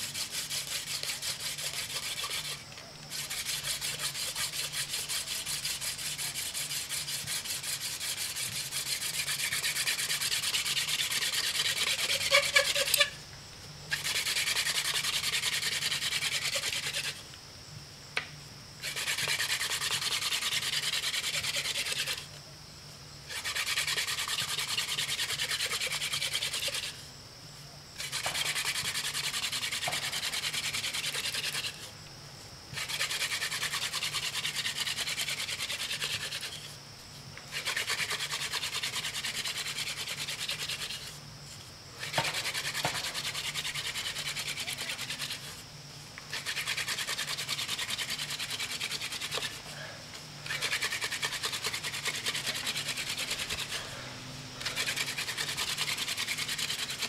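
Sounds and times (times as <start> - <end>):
wooden spindle rubbing on board: 0.1 - 13.1, 28.0 - 31.9, 42.0 - 45.6.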